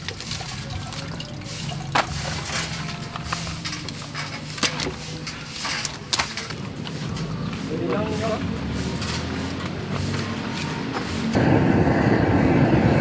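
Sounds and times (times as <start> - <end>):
liquid splashing and dripping: 0.0 - 6.4.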